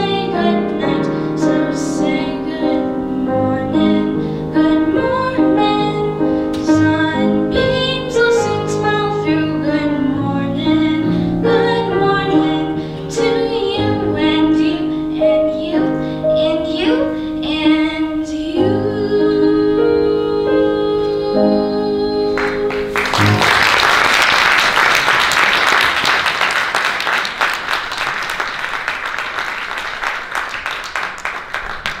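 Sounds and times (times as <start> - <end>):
girl singing: 0.0 - 23.0
piano accompaniment: 0.0 - 24.9
audience applauding: 22.4 - 32.0.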